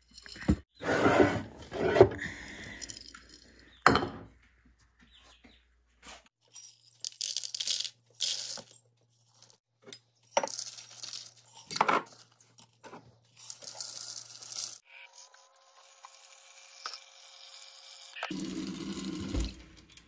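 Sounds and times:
dried vegetables rattling into bowls: 10.3 - 12.3, 13.3 - 14.8.

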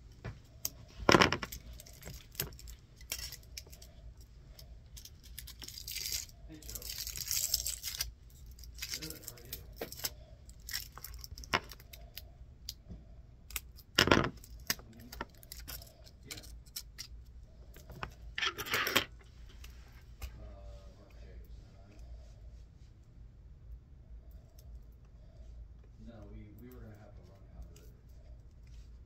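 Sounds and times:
cable wires rustling: 0.0 - 23.1.

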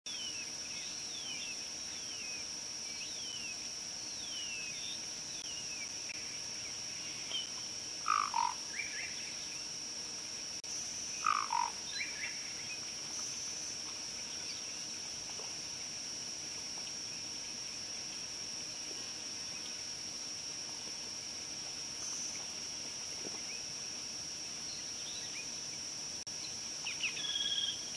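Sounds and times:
high-pitched insect drone: 0.1 - 27.9.

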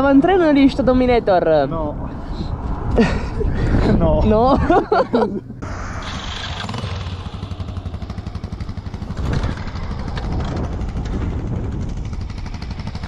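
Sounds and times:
motorcycle engine running: 5.6 - 13.0.

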